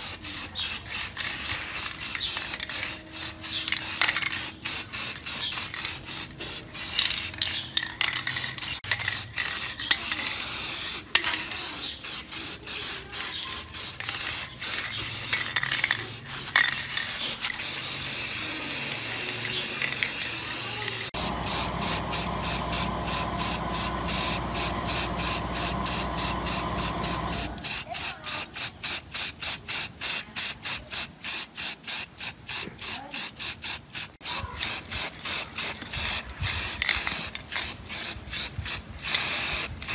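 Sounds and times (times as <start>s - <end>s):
spray paint can hissing: 0.0s - 39.9s
low hum: 21.2s - 27.6s.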